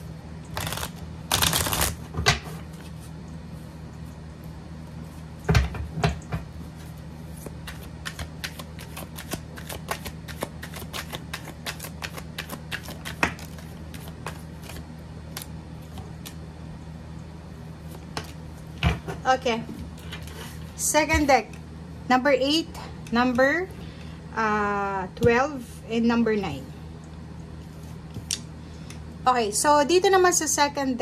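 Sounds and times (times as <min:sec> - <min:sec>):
cards being shuffled: 0:00.5 - 0:02.1, 0:06.8 - 0:16.4.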